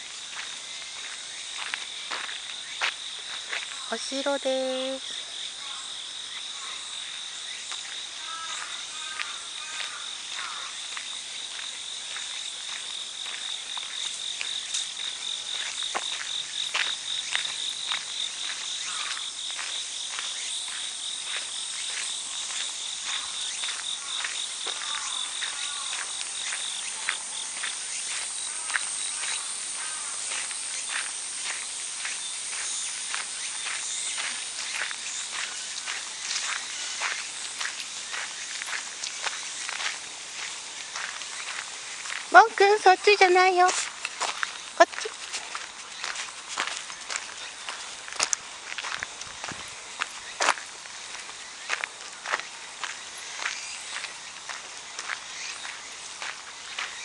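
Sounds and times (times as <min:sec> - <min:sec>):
footsteps on gravel: 0:00.0 - 0:05.0, 0:06.4 - 0:57.0
higher insect trill: 0:00.0 - 0:57.0
insects trilling: 0:00.0 - 0:57.0.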